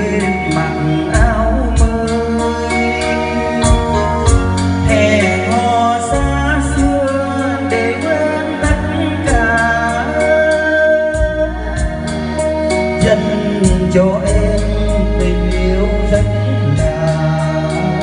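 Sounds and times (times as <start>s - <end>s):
backing track with bass and drums: 0.0s - 18.0s
man singing karaoke: 0.0s - 18.0s.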